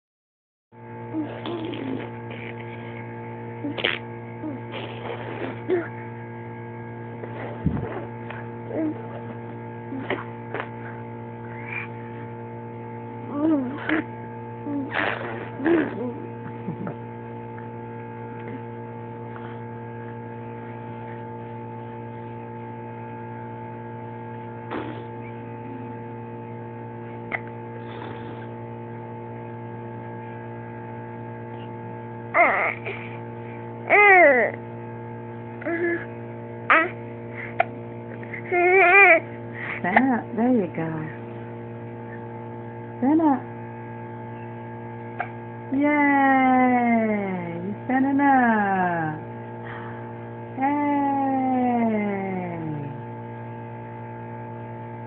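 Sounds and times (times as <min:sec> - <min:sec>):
steady electrical hum: 0:00.8 - 0:55.0
baby babbling: 0:01.2 - 0:02.1, 0:32.4 - 0:33.0, 0:33.9 - 0:34.6, 0:36.7 - 0:37.0, 0:38.5 - 0:39.2
baby blowing spit bubbles: 0:01.2 - 0:02.8, 0:03.6 - 0:05.9, 0:10.0 - 0:10.7, 0:13.7 - 0:14.1, 0:14.7 - 0:16.2, 0:24.7 - 0:25.1, 0:27.3 - 0:28.5.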